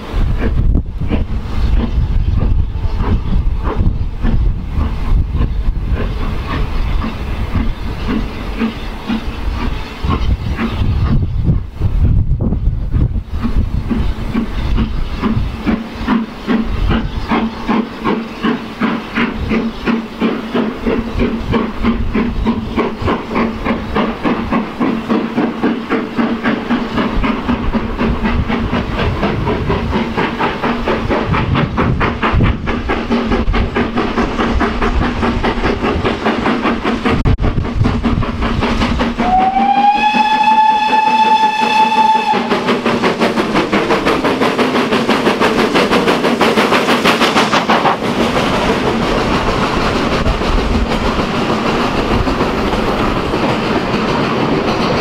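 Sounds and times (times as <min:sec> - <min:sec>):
steam locomotive exhaust beats: 0:00.0 - 0:55.0
steam locomotive whistle: 0:39.2 - 0:42.8.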